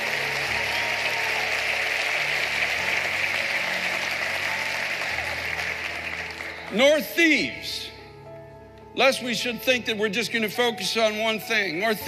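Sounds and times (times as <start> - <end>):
congregation applauding: 0.0 - 7.7
soft music of low held notes: 0.0 - 12.0.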